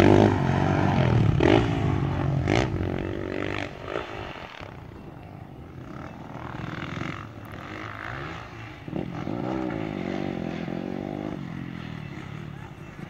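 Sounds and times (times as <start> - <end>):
dirt bike engines revving: 0.0 - 13.0.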